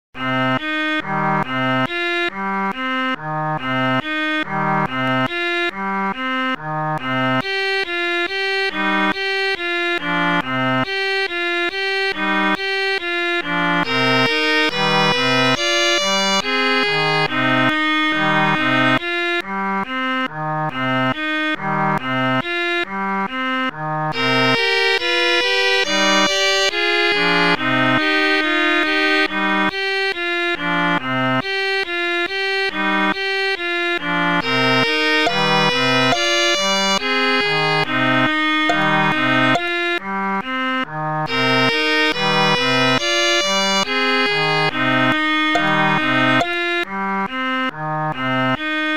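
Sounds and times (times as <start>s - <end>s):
melodic instrumental music: 34.4s - 40.0s, 41.3s - 46.9s.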